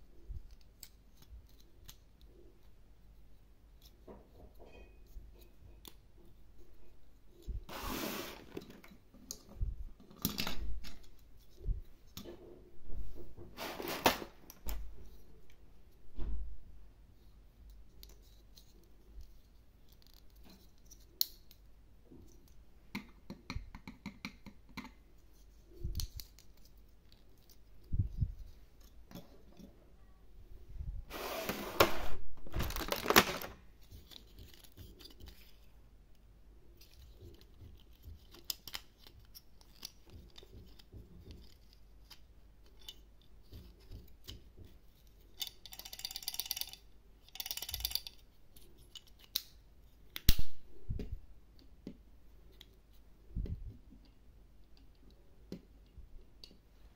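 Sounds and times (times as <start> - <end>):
plastic crinkling: 31.8 - 35.6
plastic parts clicking: 36.8 - 44.5, 45.4 - 50.4.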